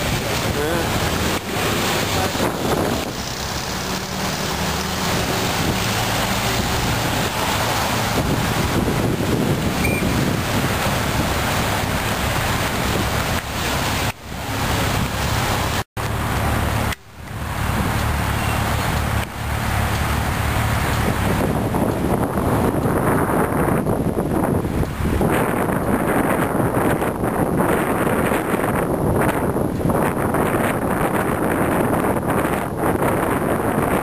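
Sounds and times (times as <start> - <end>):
wind buffeting microphone: 0.0 - 15.8, 16.4 - 34.0
motorcycles driving by: 0.0 - 22.0
cars driving by: 0.0 - 34.0.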